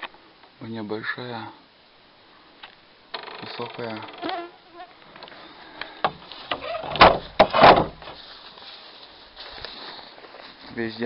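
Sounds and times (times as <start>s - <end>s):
flying insect buzzing: 3.2s - 5.3s.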